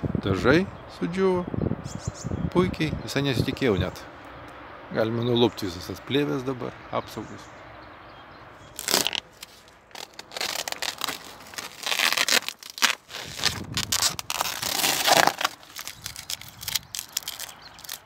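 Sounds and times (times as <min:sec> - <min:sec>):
plastic film crinkling and tearing: 0:08.8 - 0:18.0.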